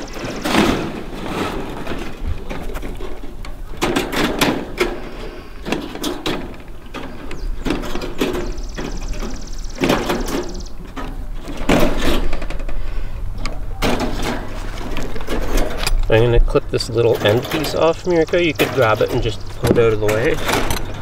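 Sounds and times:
wire mesh rattling and scraping: 0.0s - 21.0s.

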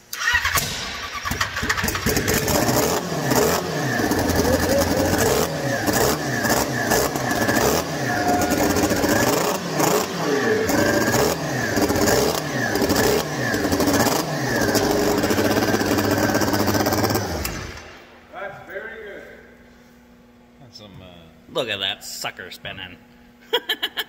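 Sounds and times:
snowmobile engine revving: 1.9s - 17.6s.

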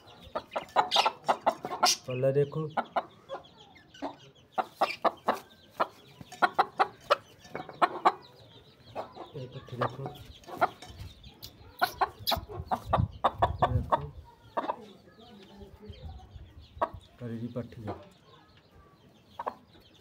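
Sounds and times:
hens clucking: 0.0s - 15.5s, 16.4s - 18.2s, 19.2s - 20.0s.

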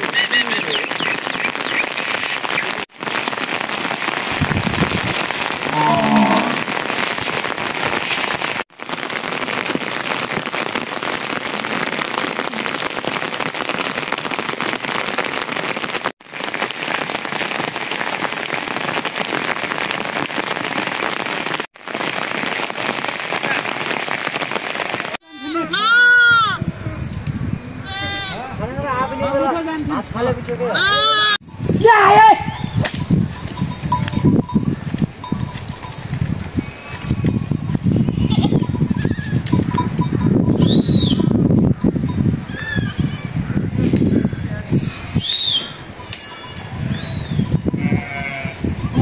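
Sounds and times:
steady rain falling: 0.0s - 25.4s.

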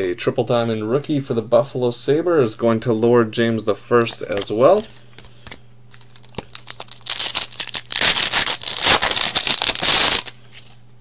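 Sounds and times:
foil wrapper tearing and crinkling: 5.9s - 10.4s.

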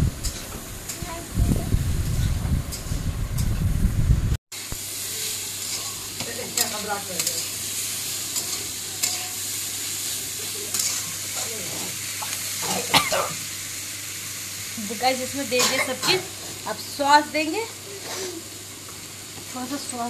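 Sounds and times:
vegetables sizzling in a pan: 0.0s - 3.9s, 4.5s - 20.0s
low rumbling noise: 0.0s - 4.4s
metal spatula scraping pan: 8.4s - 9.4s.

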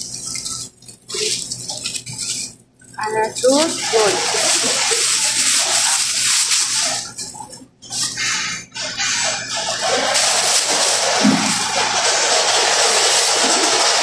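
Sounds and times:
shopping trolley rattling: 3.0s - 7.2s, 9.6s - 14.0s.

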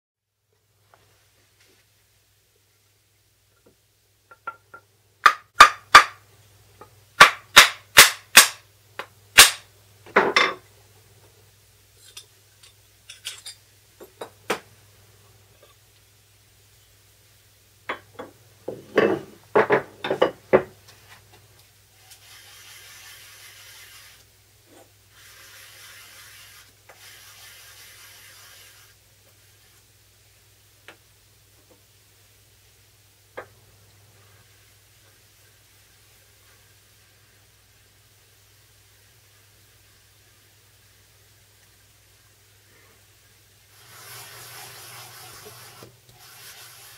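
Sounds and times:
stone rubbing on wet stone: 22.1s - 24.2s, 25.2s - 28.9s.

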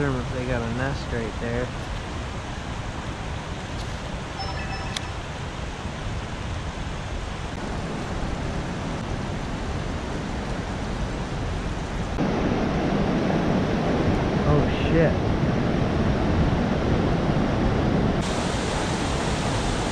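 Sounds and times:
river water rushing: 18.2s - 19.9s.

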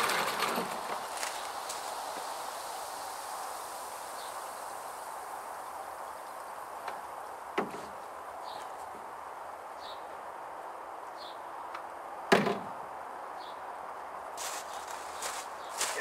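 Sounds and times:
faint background noise: 0.0s - 16.0s
sharp knocks: 7.6s - 7.9s, 12.3s - 12.7s.

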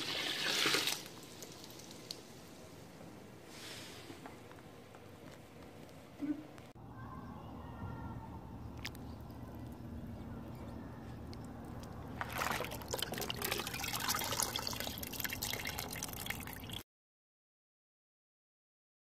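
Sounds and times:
brine splashing and dripping: 11.8s - 16.8s.

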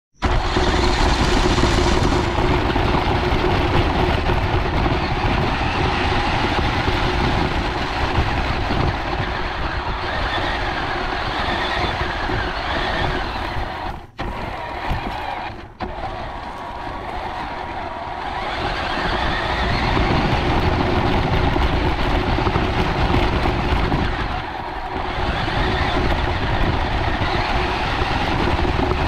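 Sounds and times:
chassis shaking over ground: 0.2s - 29.0s
rc car drivetrain rumble: 0.2s - 29.0s.

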